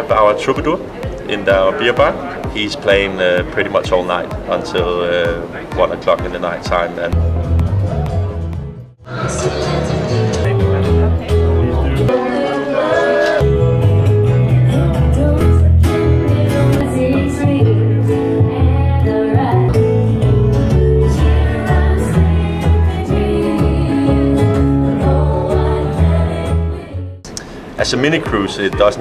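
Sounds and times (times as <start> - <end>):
guitar: 0.0 - 29.0
plucked upright bass: 7.1 - 12.1, 13.4 - 27.1
woman singing: 9.1 - 10.4, 14.7 - 20.4, 21.0 - 27.2.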